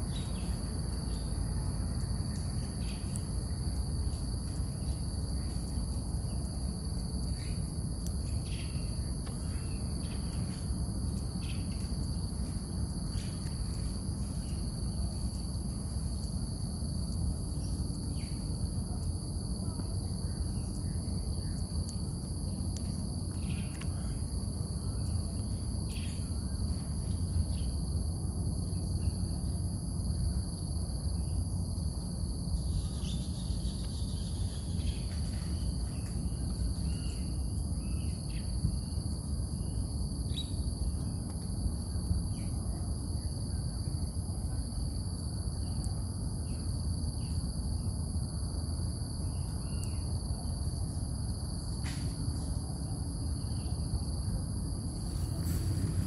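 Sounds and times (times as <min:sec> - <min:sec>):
insects droning: 0:00.0 - 0:56.0
low rumble: 0:54.9 - 0:56.0.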